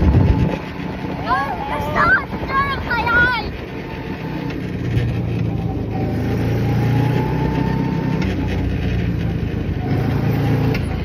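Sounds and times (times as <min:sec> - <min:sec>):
car engine running: 0:00.0 - 0:11.0
road and wind noise: 0:00.0 - 0:11.0.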